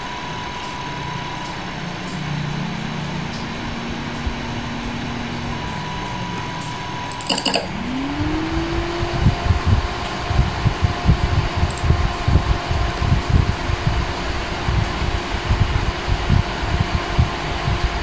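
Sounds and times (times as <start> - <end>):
cooling fan whine: 0.0 - 18.0
sharp click: 7.1 - 7.8.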